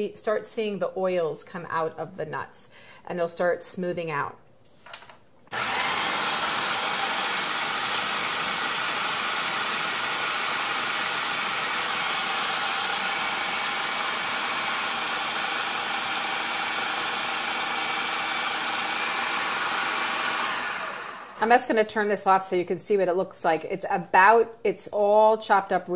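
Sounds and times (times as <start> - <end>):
food processor running: 5.5 - 21.4.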